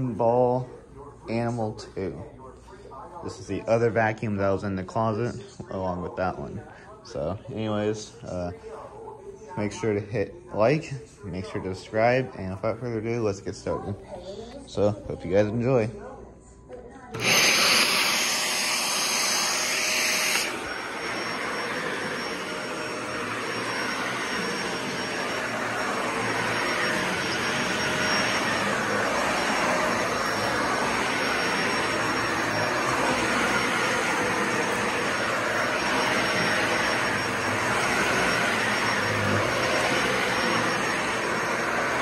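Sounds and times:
vacuum cleaner running: 17.1 - 42.0.

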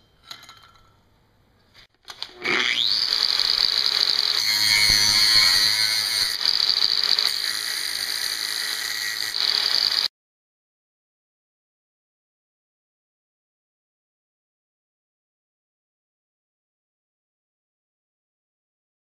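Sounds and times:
angle grinder grinding steel: 2.2 - 10.1.

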